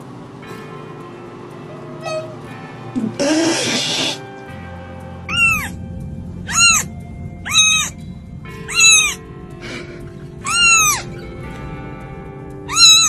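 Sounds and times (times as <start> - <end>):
background music: 0.0 - 13.0
kitten meowing: 2.0 - 4.2, 5.3 - 5.7, 6.5 - 6.9, 7.5 - 8.0, 8.7 - 9.2, 10.4 - 11.1, 12.7 - 13.0.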